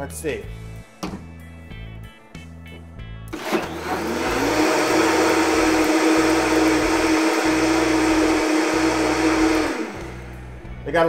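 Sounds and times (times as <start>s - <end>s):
blender motor whining: 3.3s - 10.4s.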